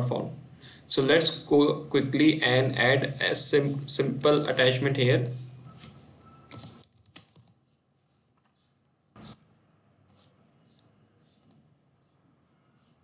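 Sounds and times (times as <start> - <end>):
computer keyboard keystrokes: 5.1 - 7.6, 9.2 - 9.4.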